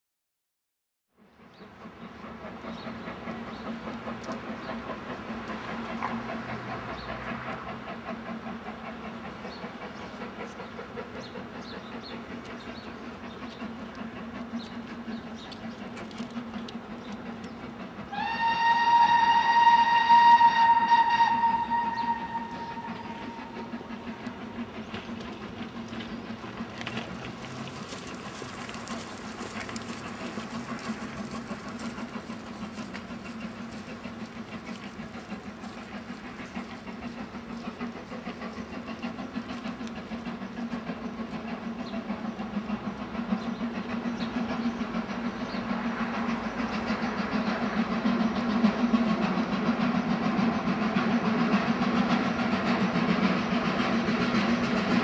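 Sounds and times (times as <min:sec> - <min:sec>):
steam locomotive working: 0:01.2 - 0:55.0
steam whistle: 0:18.1 - 0:24.1.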